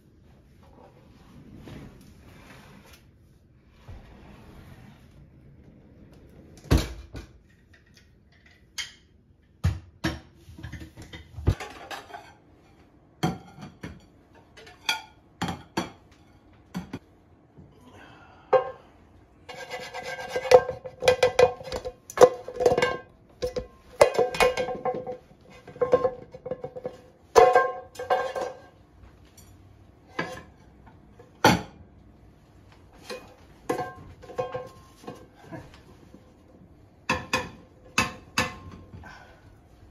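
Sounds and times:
sharp knocks and scrapes: 19.4s - 28.8s.

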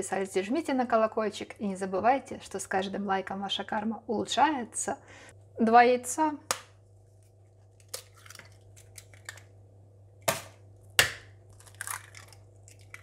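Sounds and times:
eggshell crackling: 7.7s - 9.6s, 10.2s - 13.0s.

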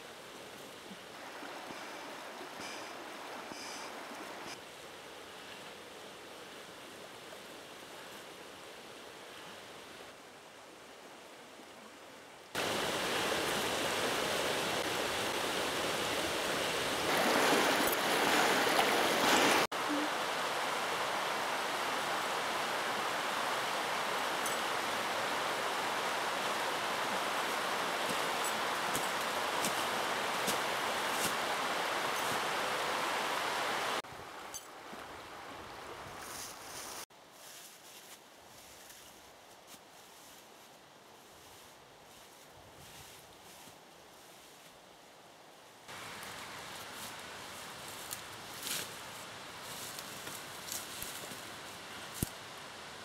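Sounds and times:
river rushing over stones: 0.0s - 5.2s, 12.6s - 34.4s, 45.9s - 48.4s.

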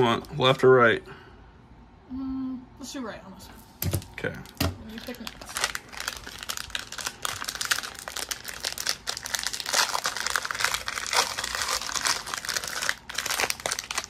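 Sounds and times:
plastic wrapping crinkling: 3.9s - 14.0s.

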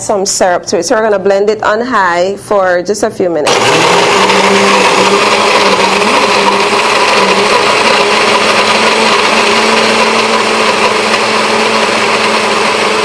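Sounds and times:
blender crushing ice: 3.5s - 13.0s.

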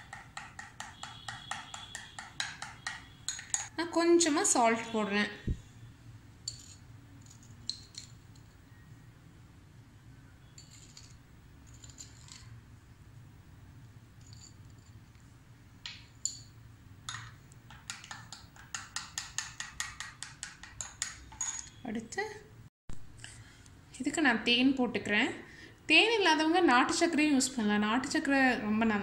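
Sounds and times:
spoon clinking against glass bowl: 0.1s - 3.7s.

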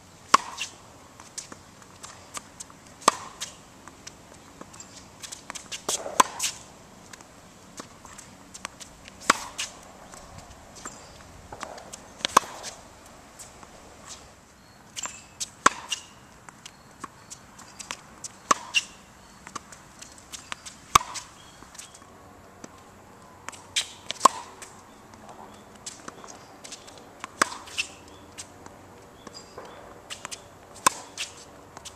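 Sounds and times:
tennis racket hitting ball: 0.3s - 14.3s, 15.0s - 16.1s, 17.6s - 19.7s, 20.3s - 21.9s, 23.5s - 31.9s
ball bouncing on court: 5.5s - 7.2s, 10.8s - 12.8s, 20.3s - 21.8s, 23.8s - 28.0s.

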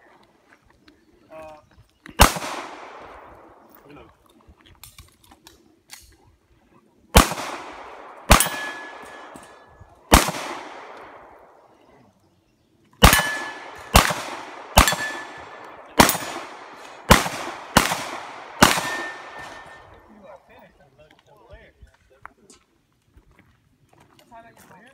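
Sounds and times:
pistol shots: 2.2s - 3.7s, 7.1s - 11.7s, 13.0s - 20.1s
steel target ringing ping: 8.3s - 9.7s, 13.0s - 13.7s, 14.8s - 15.4s.

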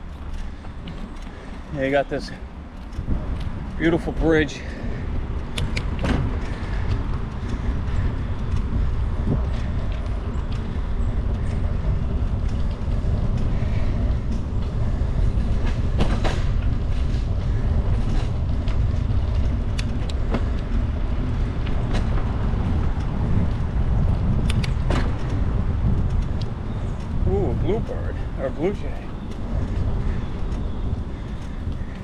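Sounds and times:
bicycle tyres rolling on pavement: 0.0s - 32.0s
wind rumble on microphone: 0.0s - 32.0s
small clicks and ticks: 5.3s - 15.8s, 17.9s - 27.8s, 28.5s - 32.0s.

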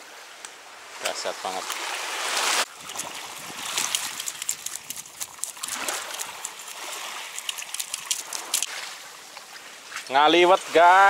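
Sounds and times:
seawater washing on beach: 1.0s - 11.0s
small clicks and crunches: 2.9s - 8.7s.

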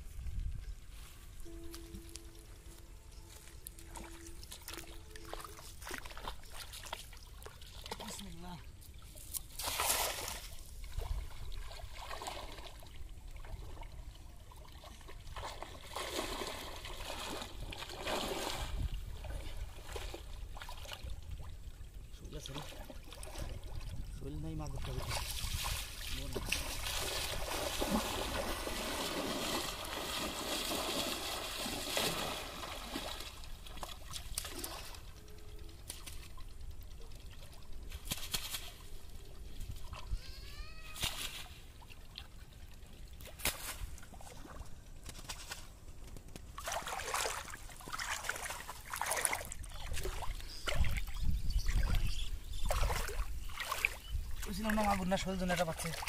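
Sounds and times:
water trickling and dripping: 1.4s - 9.4s
water splashing heavily: 15.4s - 20.2s, 24.9s - 34.9s, 46.6s - 51.0s.

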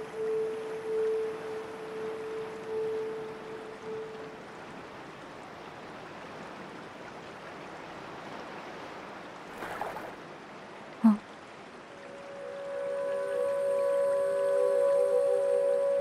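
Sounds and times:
river water flowing: 0.0s - 16.0s
water splash: 9.4s - 10.6s.

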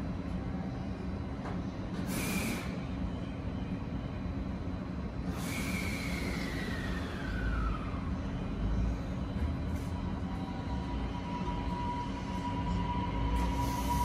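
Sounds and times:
train equipment humming: 0.0s - 14.0s
air hiss burst: 2.1s - 2.8s.

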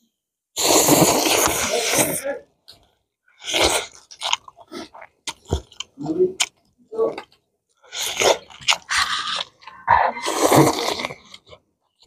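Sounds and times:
noodles slurped: 0.6s - 2.3s, 3.4s - 6.5s, 7.8s - 11.6s
chewing and mouth smacking: 3.5s - 12.0s.

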